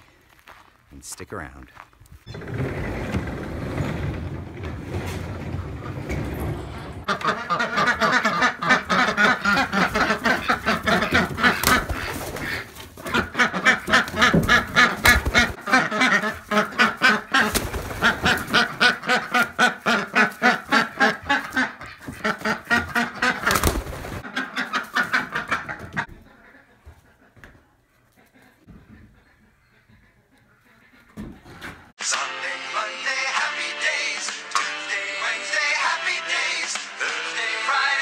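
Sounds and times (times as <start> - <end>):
duck quacking rapidly: 7.1 - 23.6.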